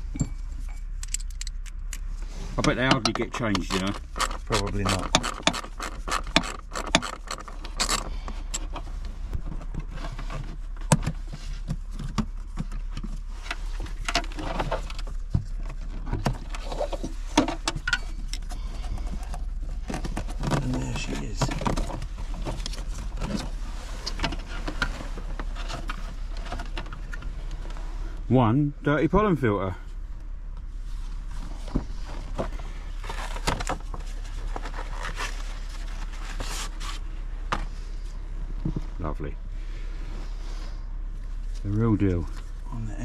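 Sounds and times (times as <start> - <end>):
steady low hum: 0.0 - 43.0
plastic trim clicks and rattles: 2.9 - 8.0.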